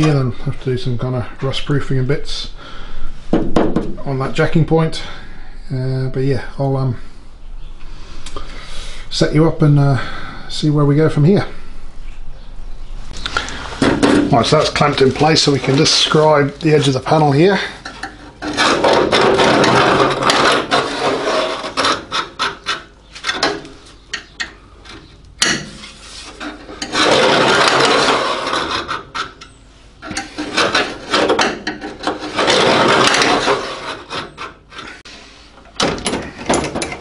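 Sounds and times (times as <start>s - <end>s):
scriber scratching sheet steel: 18.2s - 23.5s, 25.7s - 35.0s.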